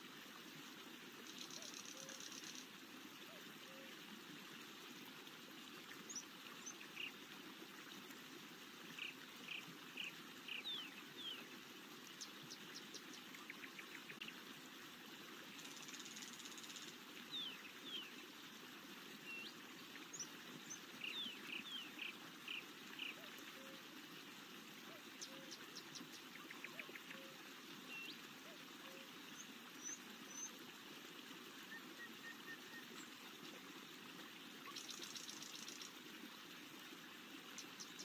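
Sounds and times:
trickling stream: 0.0 - 38.0
songbirds chirping: 8.9 - 14.4, 15.6 - 30.7.

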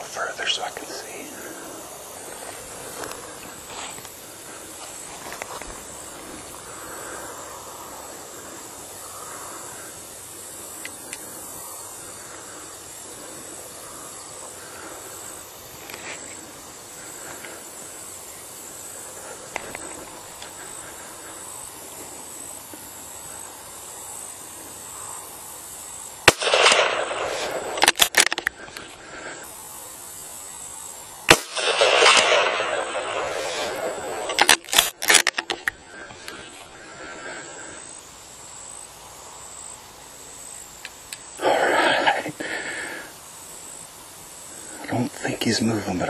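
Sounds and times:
sharp clicks: 10.8 - 11.3, 19.5 - 20.7, 26.2 - 29.0, 31.3 - 36.4
rifle shot: 26.2 - 28.4, 31.3 - 35.4.

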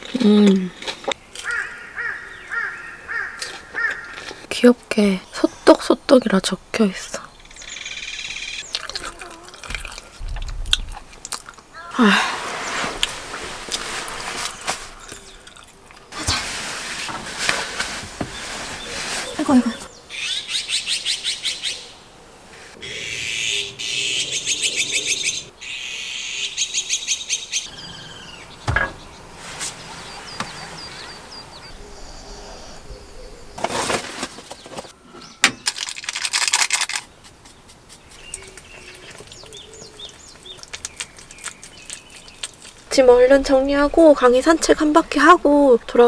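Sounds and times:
bird chirps: 7.3 - 8.9, 19.2 - 22.0, 22.8 - 33.6, 37.4 - 42.7.

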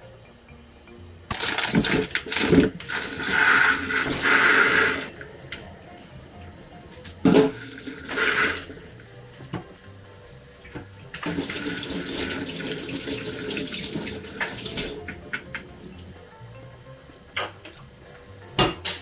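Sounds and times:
tap running into steel sink: 10.7 - 15.6.

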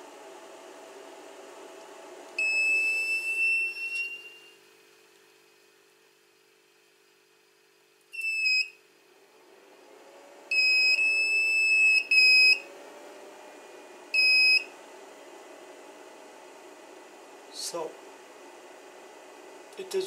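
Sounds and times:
steady whir: 9.1 - 20.0
high-pitched buzzer beeps: 10.5 - 12.6, 14.2 - 14.6.

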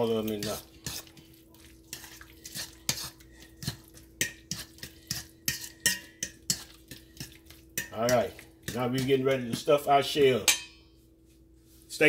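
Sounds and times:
metal utensil clinking in steel bowl: 0.0 - 1.2, 1.9 - 10.8.

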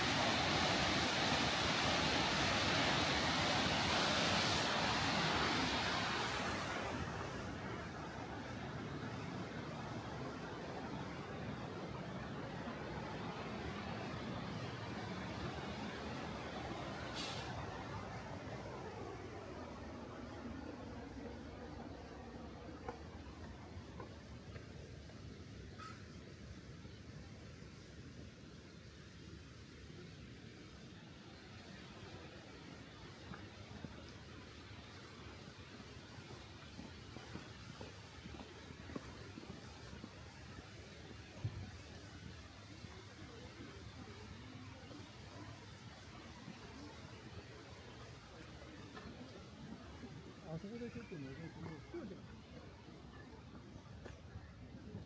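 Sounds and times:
light hiss: 0.0 - 10.0, 12.4 - 18.7
waterfall roaring: 0.0 - 24.6, 30.6 - 54.0.

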